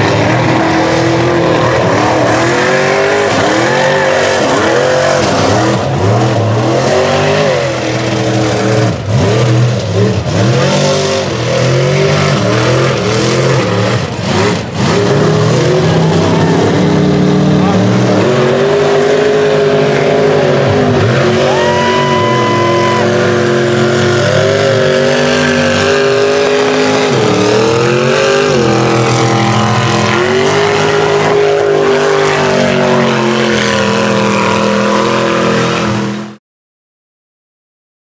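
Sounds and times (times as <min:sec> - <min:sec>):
truck engines revving: 0:00.0 - 0:36.4.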